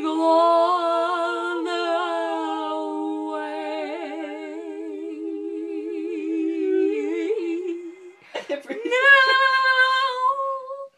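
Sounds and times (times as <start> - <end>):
women singing in harmony: 0.0 - 10.9.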